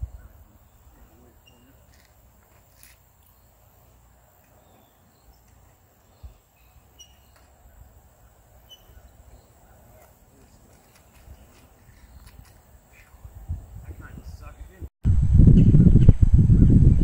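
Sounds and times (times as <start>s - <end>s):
bird chirps: 0.0s - 2.0s, 4.4s - 13.2s
low rumble: 15.1s - 17.0s.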